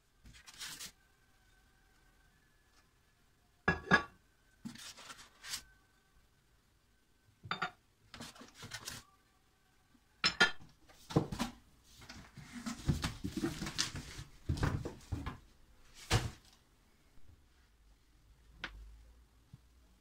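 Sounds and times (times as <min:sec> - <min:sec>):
cardboard rustling and thumping: 0:11.1 - 0:16.5.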